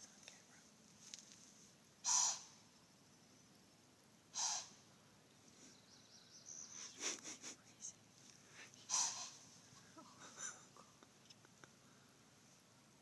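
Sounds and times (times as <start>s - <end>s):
deer alarm snorts: 2.1s - 2.5s, 4.4s - 4.8s, 8.9s - 9.4s.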